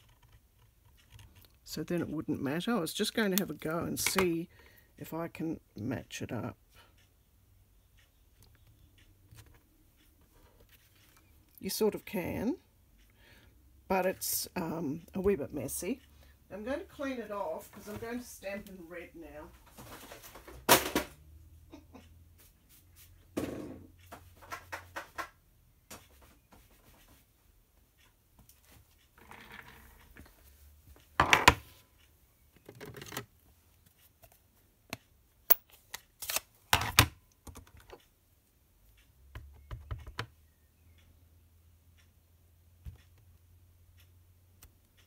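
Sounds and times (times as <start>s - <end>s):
rubber stamps clicking and tapping: 24.0s - 26.2s, 39.3s - 40.4s.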